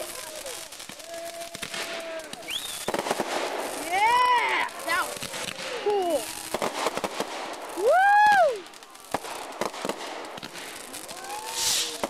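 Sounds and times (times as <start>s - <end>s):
fireworks crackling and popping: 0.0s - 12.0s
person exclaiming: 5.8s - 6.4s, 7.8s - 8.6s.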